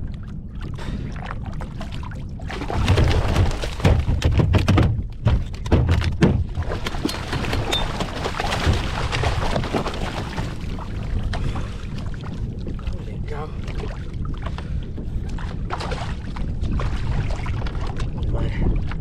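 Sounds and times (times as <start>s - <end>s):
fish knocking against hull: 2.6s - 11.5s
fish splashing at surface: 6.6s - 10.5s.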